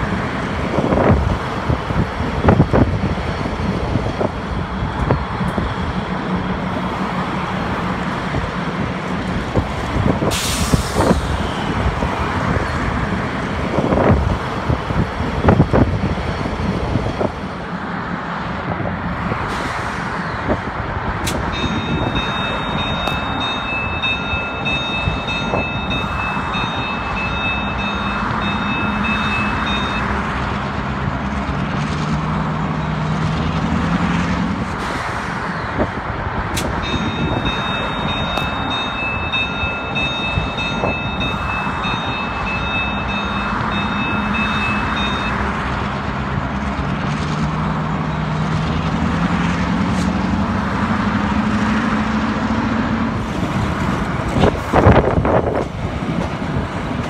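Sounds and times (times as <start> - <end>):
diesel locomotive engines droning: 0.0 - 57.0
high steady ringing tone: 21.5 - 30.2, 36.8 - 45.5.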